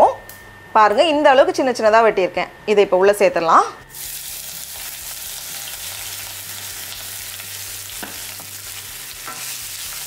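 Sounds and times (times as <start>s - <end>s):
onions frying in hot oil: 3.9s - 10.0s.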